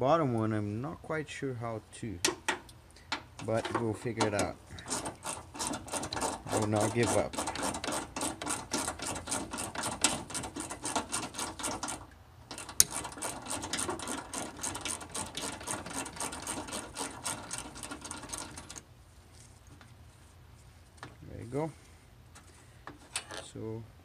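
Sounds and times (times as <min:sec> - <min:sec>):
hand ratchet clicking: 0:04.2 - 0:18.8.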